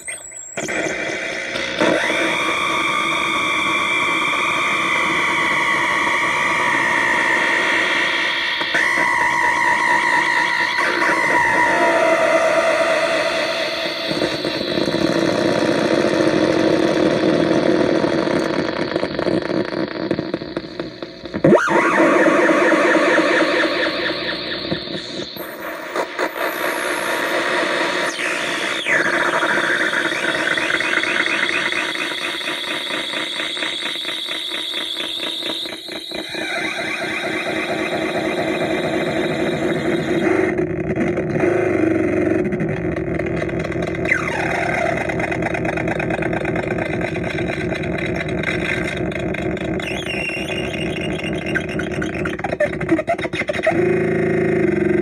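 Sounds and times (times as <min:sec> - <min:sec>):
squealing warbling synth tones: 0:05.6 - 0:15.1, 0:21.4 - 0:26.6, 0:34.9 - 0:40.5, 0:48.4 - 0:53.8.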